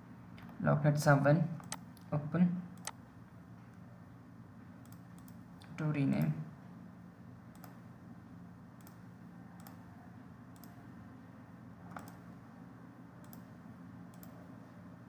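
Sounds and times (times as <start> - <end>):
steady low hum: 0.0 - 15.0
computer mouse clicks: 1.6 - 2.1, 2.8 - 3.0, 4.8 - 5.7, 7.5 - 7.8, 8.8 - 9.0, 9.6 - 9.8, 10.5 - 10.8, 11.8 - 12.3, 13.2 - 14.4.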